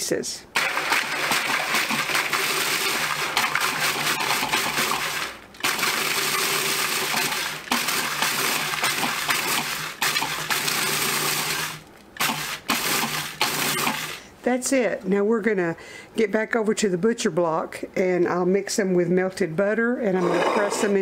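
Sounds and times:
food processor motor humming: 0.6s - 14.2s.

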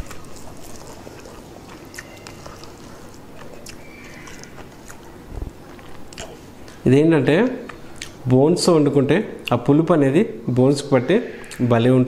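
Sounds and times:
man chewing food: 0.0s - 6.8s, 7.5s - 8.2s.

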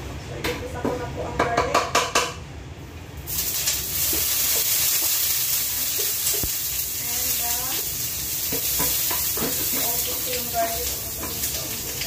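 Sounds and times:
garlic sizzling in hot oil: 3.2s - 12.0s.

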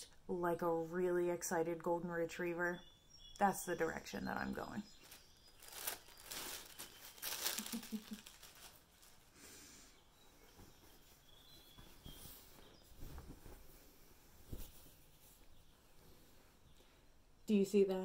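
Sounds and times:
paper wrapping crinkling: 4.9s - 9.3s
t-shirt rustling: 5.0s - 9.4s, 10.2s - 16.7s.

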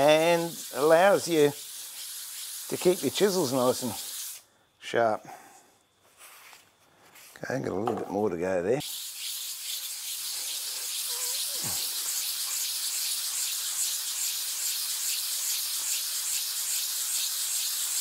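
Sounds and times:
sharpening stone rubbing on abrasive paper: 0.0s - 4.4s, 8.8s - 18.0s.

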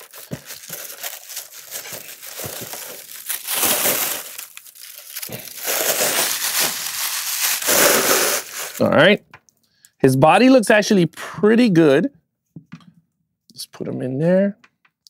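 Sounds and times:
plastic wrapping crinkling: 0.0s - 8.8s.

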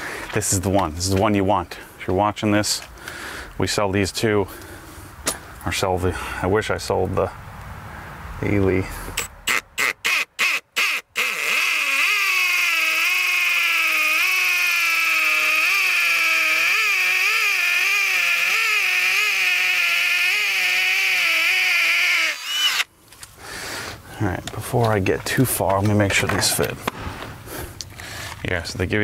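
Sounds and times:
cordless drill drilling into concrete: 10.8s - 22.9s
drill trigger pulls: 10.8s - 22.9s.

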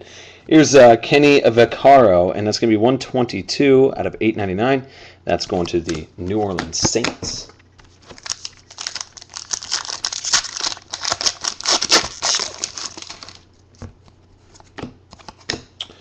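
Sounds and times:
foil pack tearing and crinkling: 8.1s - 13.4s.

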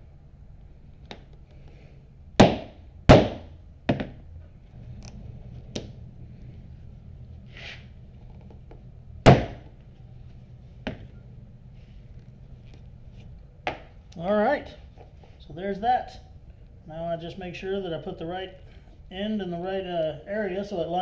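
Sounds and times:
mallet striking hole punch: 2.4s - 4.2s, 9.3s - 9.6s.

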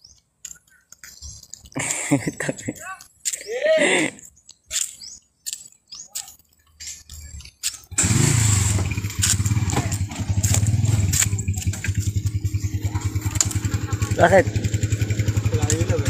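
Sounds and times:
motorcycle engine running: 7.9s - 16.0s
starter clicks: 8.9s - 14.0s.

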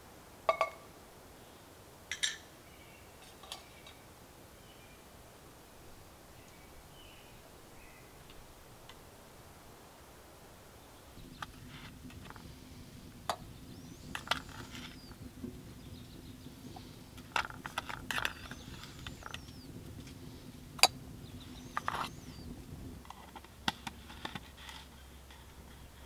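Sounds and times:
low steady hum: 0.0s - 26.0s
faint bird chirps: 2.6s - 5.1s, 6.3s - 8.4s, 13.4s - 17.0s, 18.1s - 19.8s, 21.2s - 22.6s.

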